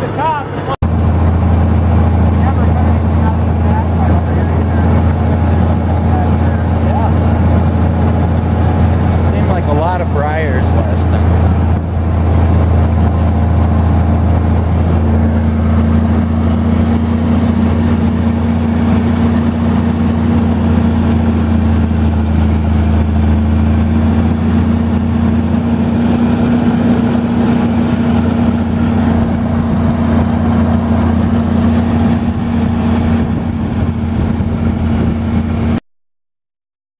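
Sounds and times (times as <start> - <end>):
tractor engine running: 0.0 - 35.8.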